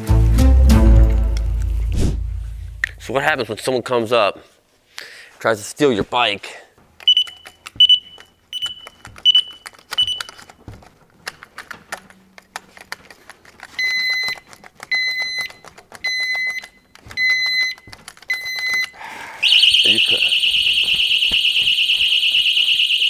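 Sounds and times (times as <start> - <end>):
loud alarm beeping: 7.1 - 10.3, 18.4 - 23.0.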